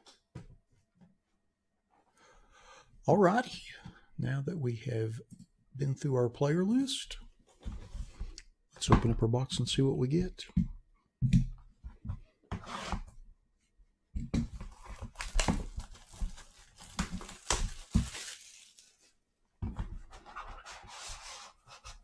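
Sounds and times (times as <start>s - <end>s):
cardboard box ripping and crinkling: 14.6s - 19.0s.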